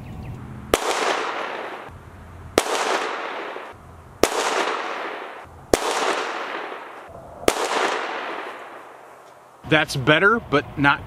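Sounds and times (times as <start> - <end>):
handgun shots with echo: 0.7 - 1.9, 2.6 - 8.8.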